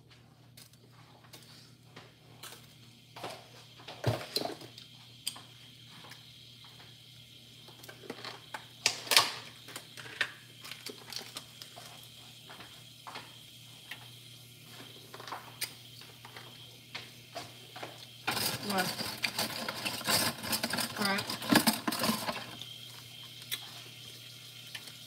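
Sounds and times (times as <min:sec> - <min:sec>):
pots and utensils clattering: 0:03.2 - 0:04.7, 0:08.1 - 0:11.4, 0:17.8 - 0:22.6.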